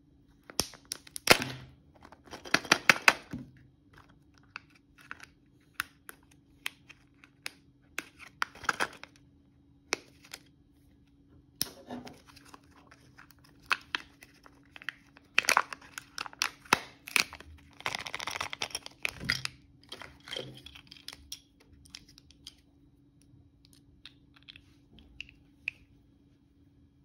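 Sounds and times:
plastic crinkling: 12.2 - 20.8.

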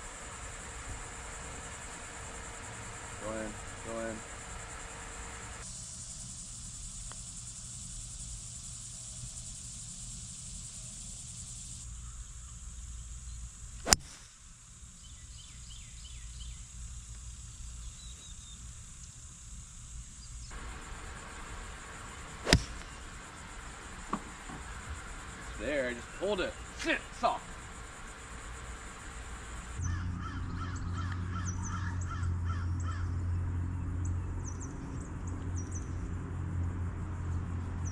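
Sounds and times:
insect buzz: 0.0 - 37.9
golf club cracking ball: 13.8 - 14.2, 22.2 - 23.3.

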